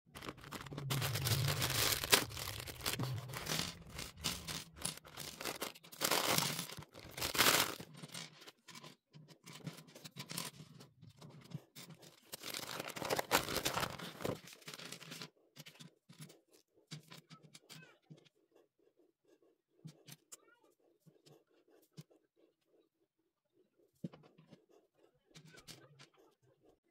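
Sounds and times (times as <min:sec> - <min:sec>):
packaging tearing and crinkling: 0:00.1 - 0:08.0, 0:12.3 - 0:15.0
plastic pieces rattling on table: 0:00.1 - 0:08.5, 0:12.3 - 0:15.1.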